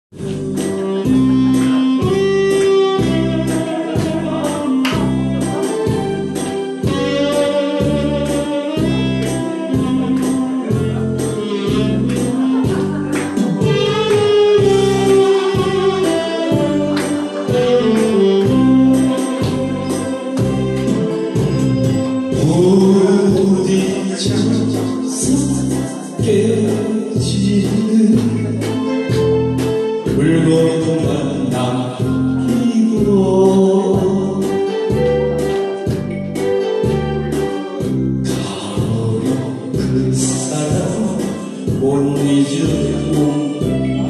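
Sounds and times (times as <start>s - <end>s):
instrumental backing track: 0.1s - 44.0s.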